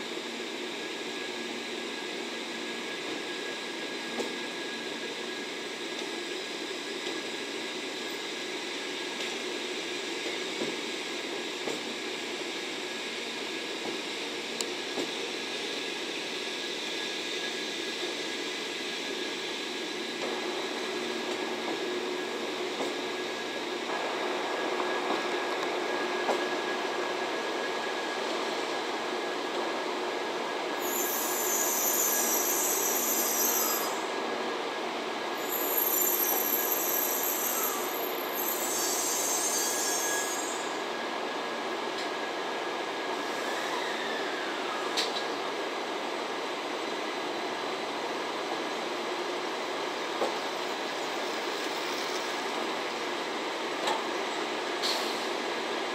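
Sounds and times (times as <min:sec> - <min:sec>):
train rolling past: 0:13.1 - 0:55.9.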